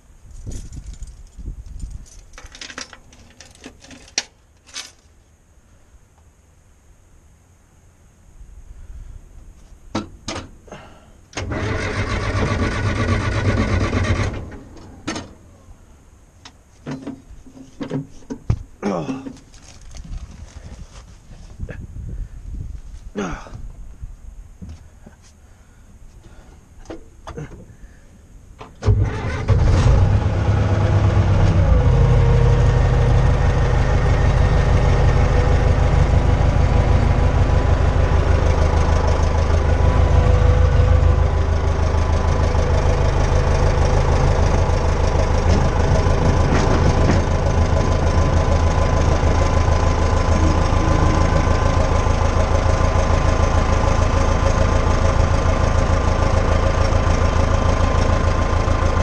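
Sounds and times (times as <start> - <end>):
diesel engine starting and idling: 10.7 - 15.9, 28.6 - 59.0.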